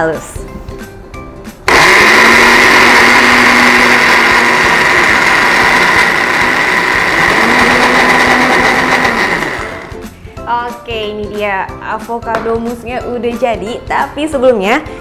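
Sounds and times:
blender running: 0:01.7 - 0:10.0.

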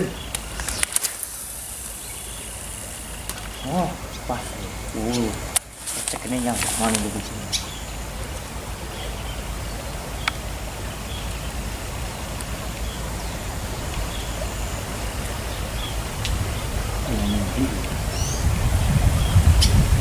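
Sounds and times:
faint high chirps: 0:00.0 - 0:11.5
rushing outdoor noise: 0:00.0 - 0:20.0.

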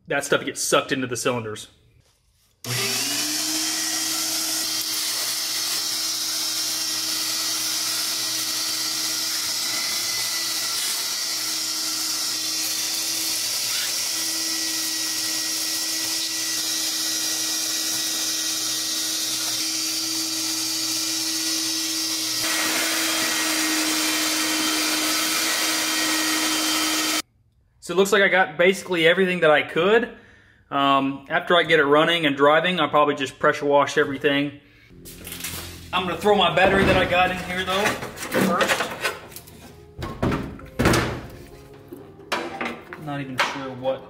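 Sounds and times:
wet dry vacuum running: 0:02.7 - 0:27.2.

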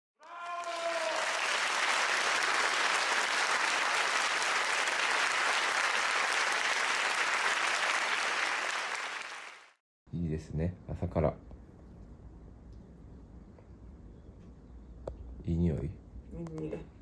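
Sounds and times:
applause: 0:00.2 - 0:09.8.

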